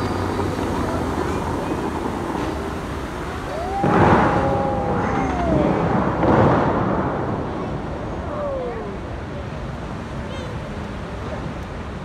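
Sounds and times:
fountain water jets rushing: 0.0 - 12.0
steady water wash: 0.0 - 12.0.

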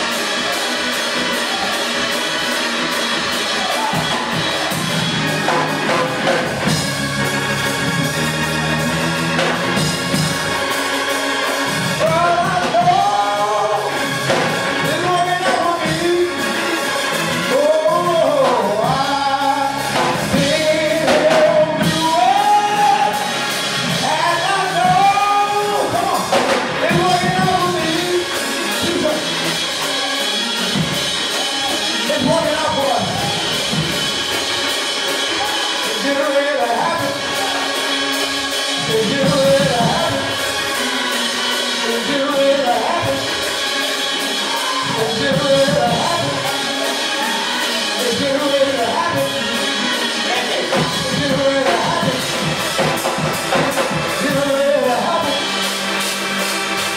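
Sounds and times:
gospel music on keyboard and drums: 0.0 - 56.9
man singing into microphone: 12.0 - 16.6, 17.4 - 29.2, 38.8 - 40.4, 41.8 - 43.4, 44.5 - 52.5, 54.1 - 55.5.

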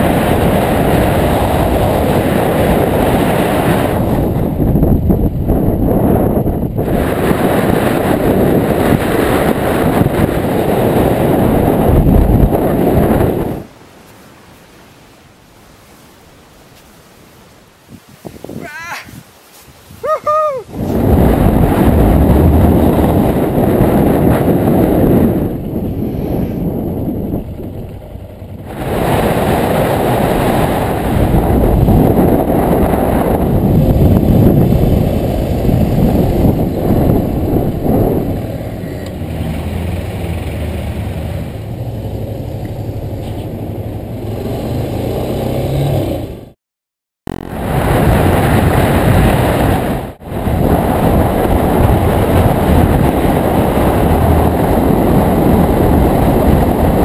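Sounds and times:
wind rushing over microphone: 0.0 - 13.8, 17.7 - 46.6, 47.3 - 57.0
person shouting: 18.5 - 19.2, 20.0 - 20.7
motorcycle engine running: 22.0 - 30.2.

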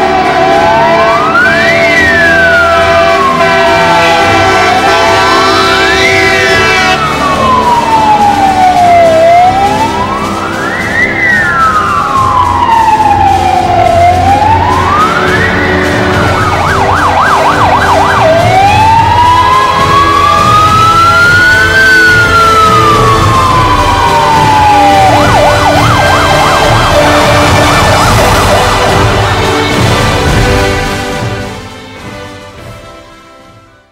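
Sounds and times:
fire engine siren wailing: 0.0 - 32.7
truck engine rumble: 0.0 - 32.7.

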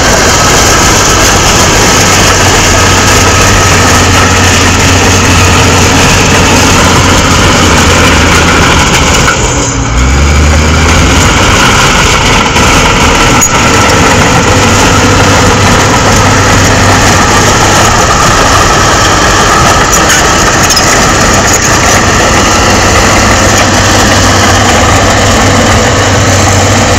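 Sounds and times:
bulldozer diesel engine running: 0.0 - 26.9.

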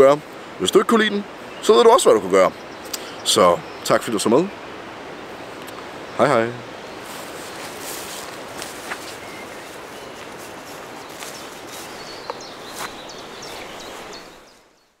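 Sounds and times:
bird chirps: 8.9 - 15.0.

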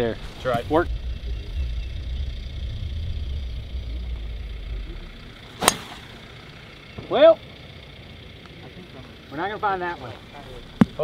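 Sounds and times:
low rumble: 0.0 - 8.4
golf club striking ball: 5.5 - 6.3.

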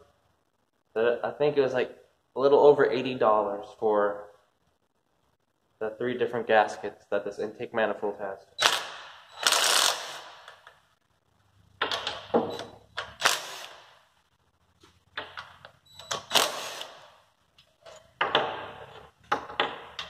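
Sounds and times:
cordless drill running in bursts: 9.4 - 10.2, 13.2 - 13.7, 16.3 - 17.0.

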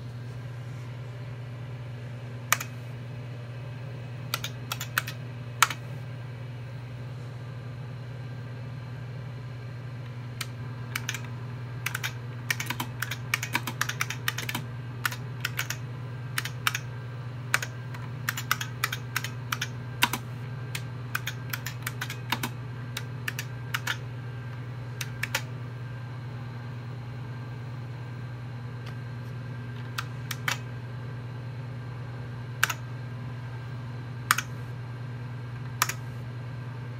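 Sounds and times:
steady low hum: 0.0 - 36.9
keyboard key clicks: 4.3 - 5.8, 11.0 - 15.8, 23.3 - 24.0, 29.9 - 30.6, 32.6 - 32.8, 34.3 - 34.5, 35.8 - 36.0.

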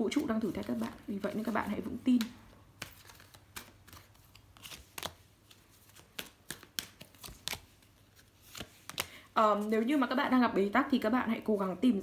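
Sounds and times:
cards clicking and sliding: 0.6 - 9.2.

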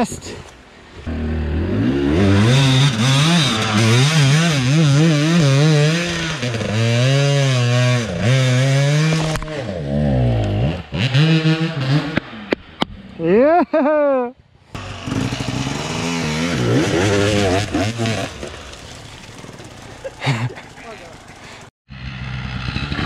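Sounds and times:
motorcycle engine revving: 1.1 - 12.5, 14.7 - 23.0.

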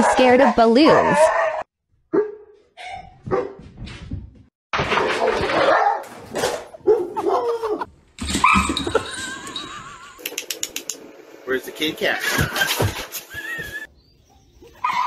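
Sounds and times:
dogs barking and whining: 0.0 - 3.6, 5.0 - 10.1, 12.8 - 15.0.

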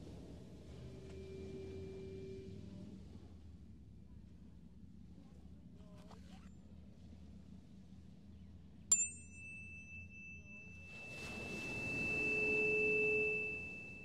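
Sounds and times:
tuning fork ringing: 8.9 - 14.0
wave washing up beach: 10.9 - 13.4.

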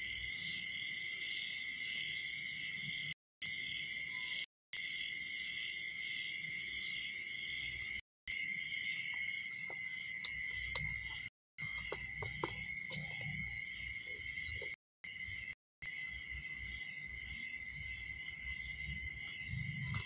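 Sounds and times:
night insects chirring: 0.0 - 20.0
faint clicks and taps: 9.0 - 14.8.

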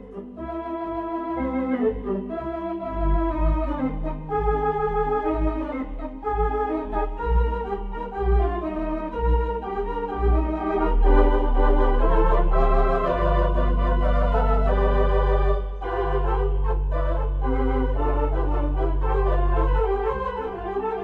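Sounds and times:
organ music: 0.0 - 21.0.

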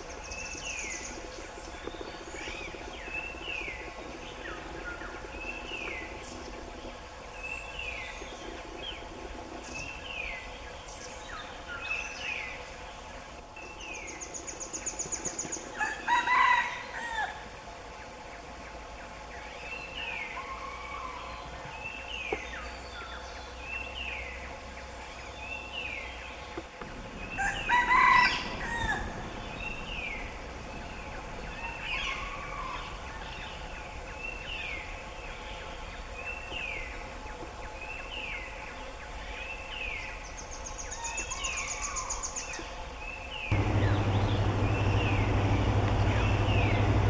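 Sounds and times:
bird crowing call: 15.8 - 17.4, 27.2 - 30.1.

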